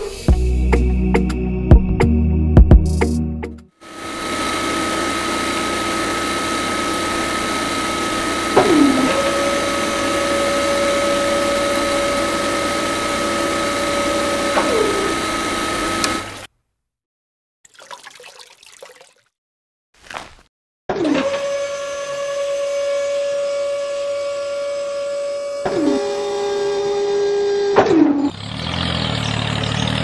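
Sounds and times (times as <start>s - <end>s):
small motor high whine: 3.8s - 16.5s, 21.0s - 28.4s.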